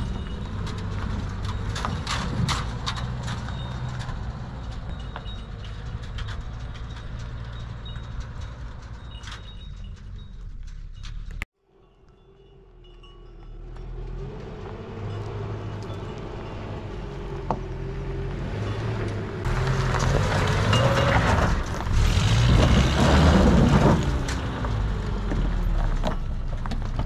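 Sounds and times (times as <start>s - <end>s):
vehicle engine passing by: 12.3s - 26.7s.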